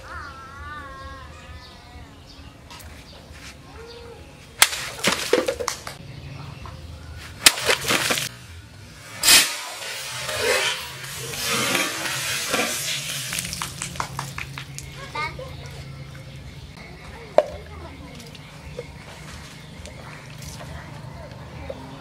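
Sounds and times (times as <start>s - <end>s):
birds calling: 0.0s - 22.0s
water splashing: 4.6s - 6.0s, 7.4s - 8.3s, 9.3s - 16.6s
sword slicing bottle: 7.4s - 8.3s, 9.2s - 13.6s.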